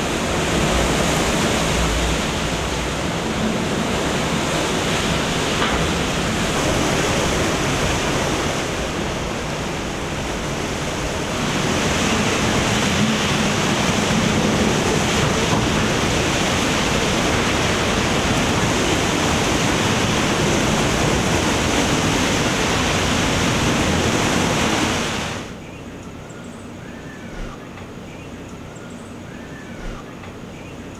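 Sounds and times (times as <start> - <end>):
storm wind and rain: 0.0 - 30.9.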